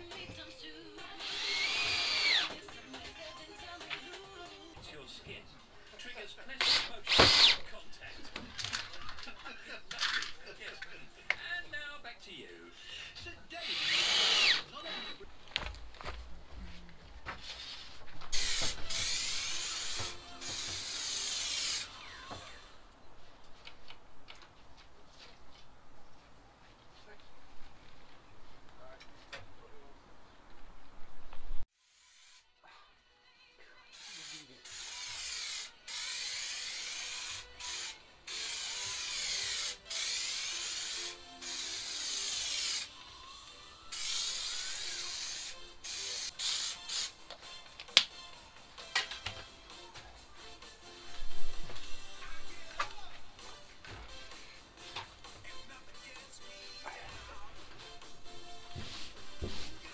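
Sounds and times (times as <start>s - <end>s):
aerosol spray hissing: 18.3s - 21.8s, 43.9s - 47.2s.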